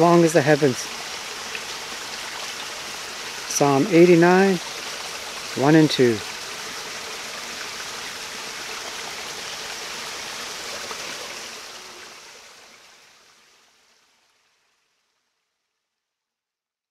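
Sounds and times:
waterfall splashing into pool: 0:00.0 - 0:14.7.

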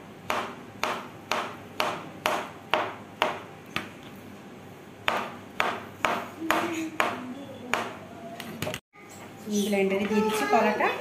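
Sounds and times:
knife chopping on plastic board: 0:00.3 - 0:04.0, 0:05.0 - 0:08.0.

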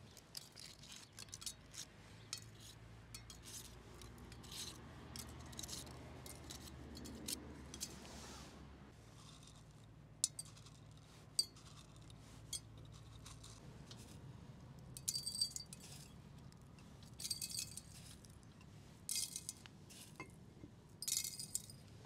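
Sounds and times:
glass jars clinking: 0:15.0 - 0:16.1, 0:17.1 - 0:18.0, 0:21.0 - 0:21.8.

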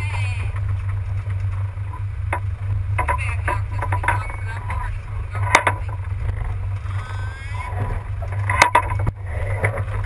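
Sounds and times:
boat engine droning: 0:00.0 - 0:10.0.

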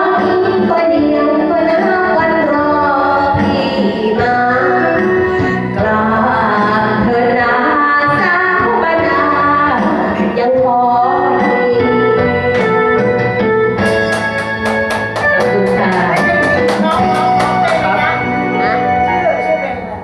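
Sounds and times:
woman singing into microphone: 0:00.0 - 0:13.0, 0:15.4 - 0:16.4
karaoke backing track: 0:00.0 - 0:20.0.

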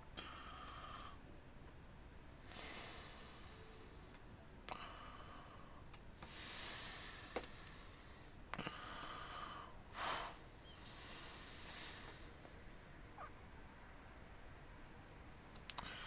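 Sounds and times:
person breathing: 0:00.2 - 0:01.2, 0:02.2 - 0:12.9, 0:15.8 - 0:16.0
faint sharp clicks: 0:15.5 - 0:15.9.

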